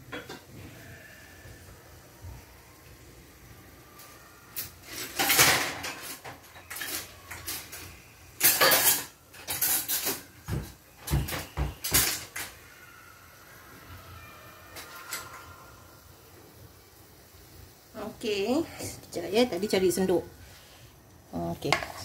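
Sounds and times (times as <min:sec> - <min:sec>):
metal utensils and pans clattering: 0:00.1 - 0:00.8, 0:04.6 - 0:12.6, 0:14.8 - 0:15.5, 0:21.6 - 0:22.0.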